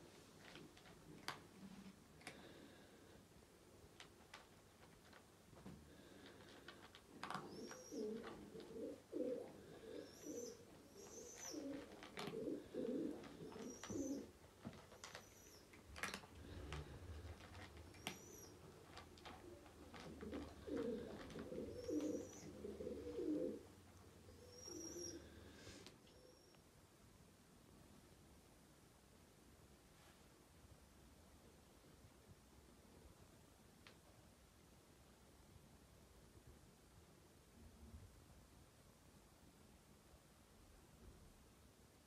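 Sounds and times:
pigeons cooing: 0:07.2 - 0:14.4, 0:16.4 - 0:25.5
small bird chirping: 0:07.4 - 0:08.2, 0:08.8 - 0:11.8, 0:13.4 - 0:14.3, 0:15.0 - 0:15.7, 0:17.9 - 0:18.8, 0:20.6 - 0:23.6, 0:24.3 - 0:25.4
cat crunching food: 0:11.7 - 0:12.4, 0:14.6 - 0:22.0.

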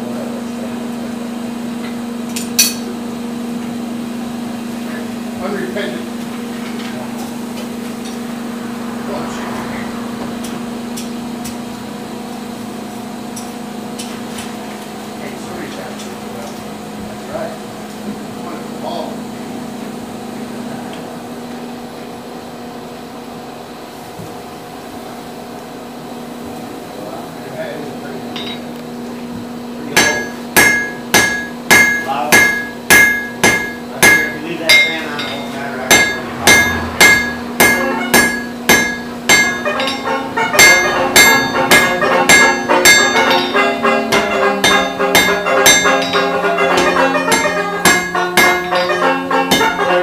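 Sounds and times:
hammer striking iron on anvil: 0:02.3 - 0:02.9, 0:28.3 - 0:28.7, 0:29.9 - 0:50.0
anvil ringing: 0:02.6 - 0:02.9, 0:28.3 - 0:28.7, 0:30.0 - 0:50.0
low hum: 0:34.7 - 0:46.4.

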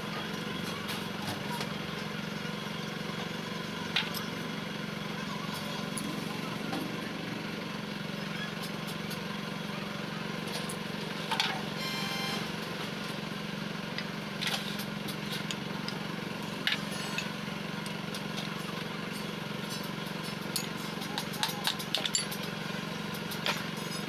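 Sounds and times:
motor droning: 0:11.6 - 0:12.7
metal parts clinking: 0:20.4 - 0:22.4.

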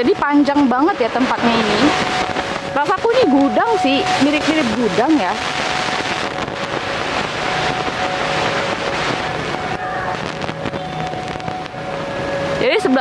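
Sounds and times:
faint steady drone: 0:00.0 - 0:13.0
road traffic roar: 0:00.0 - 0:13.0
wind buffeting microphone: 0:00.0 - 0:13.0.

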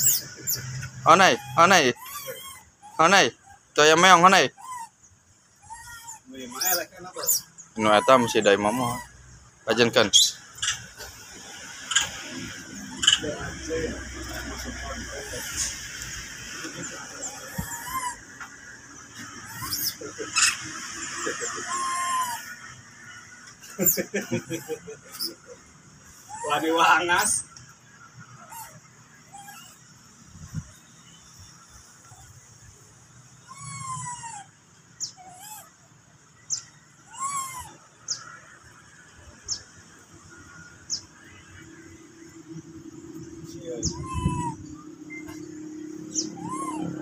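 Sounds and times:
animal chirps and squeaks: 0:00.0 - 0:22.8, 0:23.4 - 0:32.4, 0:33.2 - 0:38.6, 0:39.3 - 0:39.7, 0:43.0 - 0:47.0
whistle-like animal call: 0:43.6 - 0:45.5, 0:46.2 - 0:47.0.

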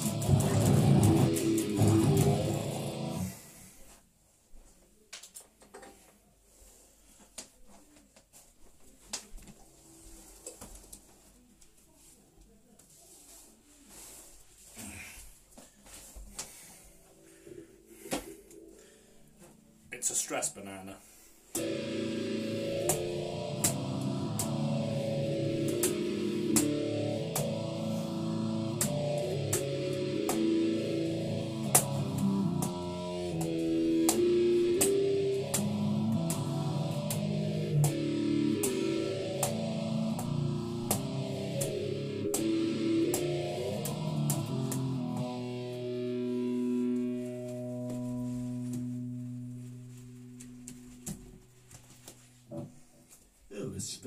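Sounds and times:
electric guitar through an amp: 0:00.0 - 0:03.5, 0:21.6 - 0:52.7.

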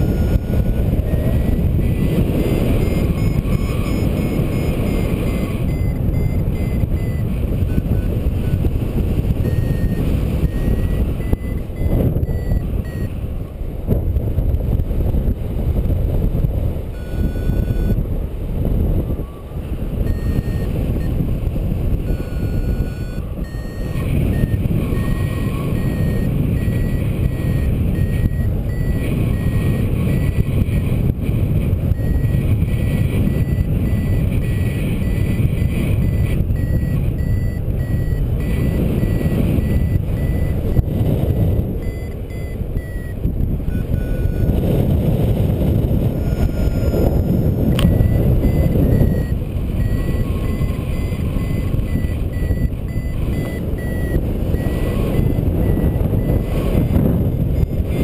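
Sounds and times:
variometer beeping: 0:00.0 - 0:13.3, 0:16.9 - 0:18.1, 0:19.1 - 0:58.0
wind rushing over microphone: 0:00.0 - 0:58.0.

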